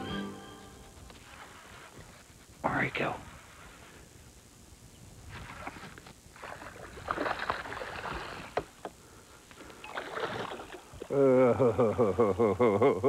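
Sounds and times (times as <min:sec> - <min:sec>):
fish splashing at water surface: 0:05.5 - 0:08.7, 0:09.8 - 0:11.1.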